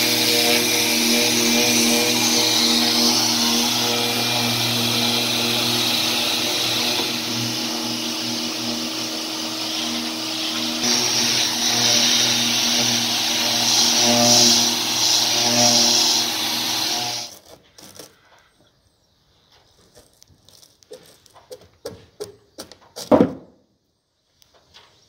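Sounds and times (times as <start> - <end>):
orbital sander whirring: 0.0 - 17.4.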